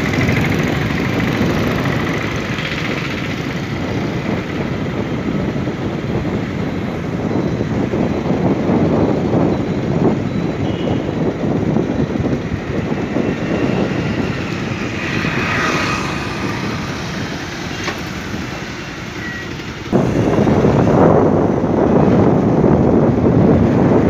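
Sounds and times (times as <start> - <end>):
vehicle road noise: 0.0 - 24.0
wind rumbling on microphone: 0.0 - 24.0.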